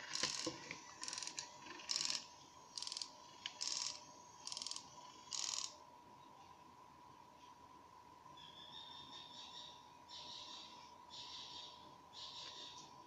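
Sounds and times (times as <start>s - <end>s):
gear train ratcheting: 0.0s - 5.8s.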